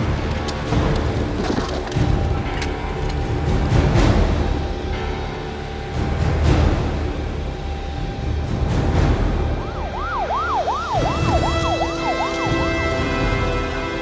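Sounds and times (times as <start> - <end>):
siren yelping: 9.6 - 13.4.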